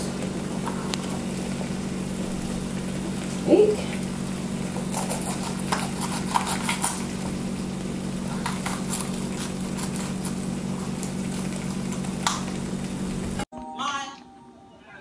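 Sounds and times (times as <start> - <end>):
chicken sizzling in a frying pan: 0.0 - 5.0, 5.6 - 13.5
steady low hum: 0.0 - 13.5
clicks of pepper being sliced: 4.8 - 7.0.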